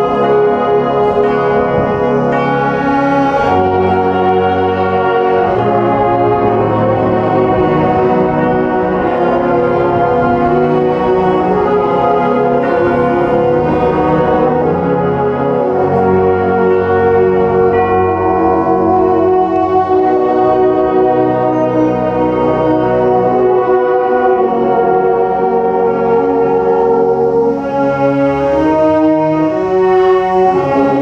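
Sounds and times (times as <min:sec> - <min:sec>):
concert band playing brass chords: 0:00.0 - 0:31.0.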